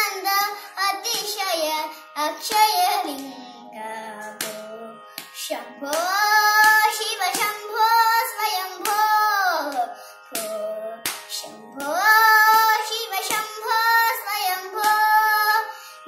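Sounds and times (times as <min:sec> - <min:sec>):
girl singing: 0:00.0 - 0:15.9
soft hand slaps: 0:04.3 - 0:07.6, 0:08.8 - 0:09.1, 0:09.7 - 0:13.5, 0:14.8 - 0:15.1.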